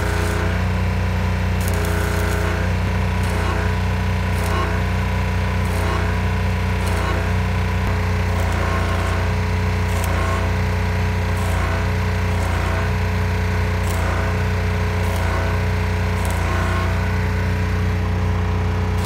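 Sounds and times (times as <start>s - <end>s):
arc welding crackling buzz: 0.0s - 19.0s
constant low hum: 0.0s - 19.0s.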